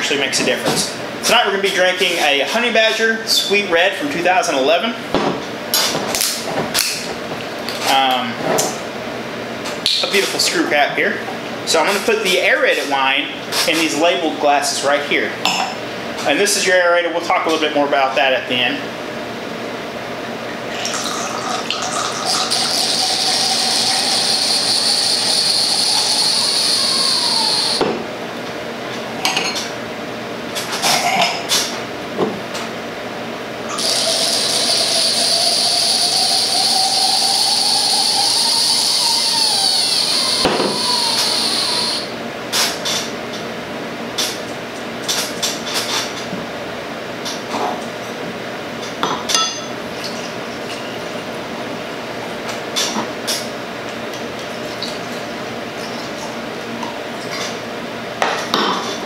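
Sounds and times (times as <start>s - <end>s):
wine pouring through aerator: 20.7s - 27.8s, 33.7s - 42.1s.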